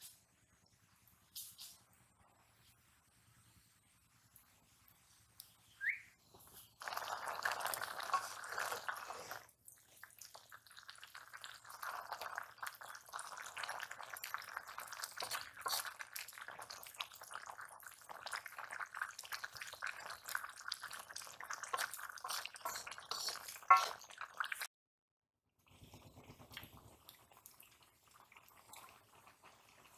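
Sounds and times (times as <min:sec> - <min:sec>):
water boiling in a wok: 0:06.4 - 0:24.7, 0:25.6 - 0:29.9
wooden spatula stirring: 0:07.7 - 0:09.4, 0:19.9 - 0:24.5.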